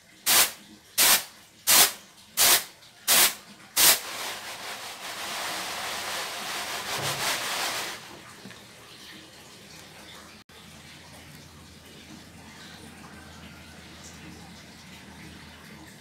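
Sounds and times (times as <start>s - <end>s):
rice swirling rustle: 3.2s - 8.2s
rice rattling on a tray: 3.8s - 8.1s.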